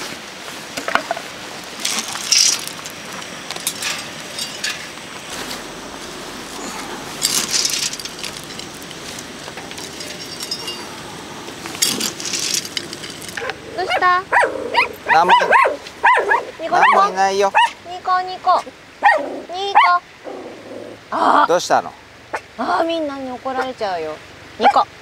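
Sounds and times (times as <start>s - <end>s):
wood pellets pouring into metal: 7.2s - 10.5s, 11.9s - 13.4s.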